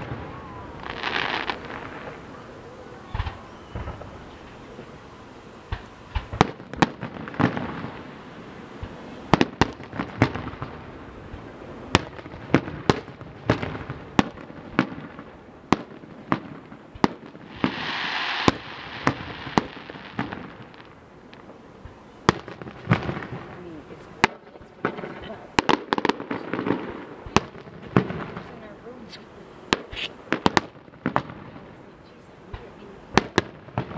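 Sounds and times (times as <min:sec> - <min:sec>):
fireworks bursting: 0:00.0 - 0:33.9
hissing noise: 0:16.7 - 0:30.6.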